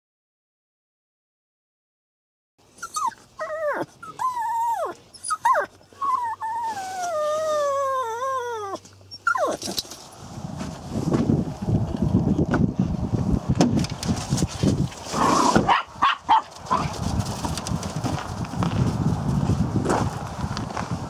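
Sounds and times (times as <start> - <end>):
dog whining: 2.8 - 9.9
low rough rustling: 9.5 - 13.1.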